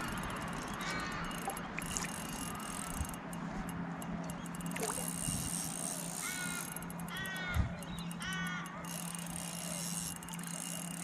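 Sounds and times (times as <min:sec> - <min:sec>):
crow cawing: 0:00.8 - 0:01.4, 0:06.2 - 0:08.8.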